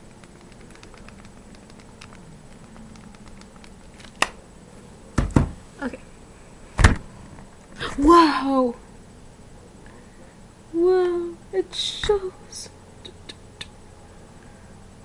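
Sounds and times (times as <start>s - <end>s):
heavy thumps: 5.2s - 5.6s.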